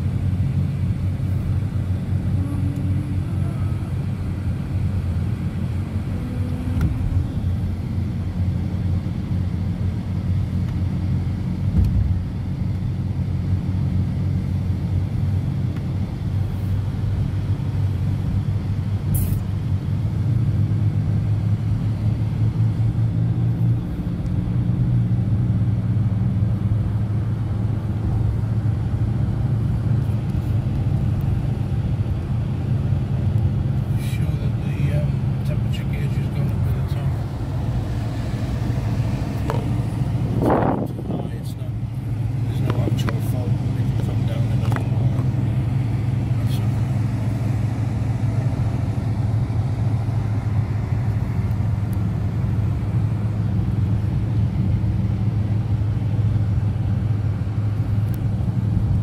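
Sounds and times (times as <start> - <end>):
car engine and road noise: 0.0 - 59.0.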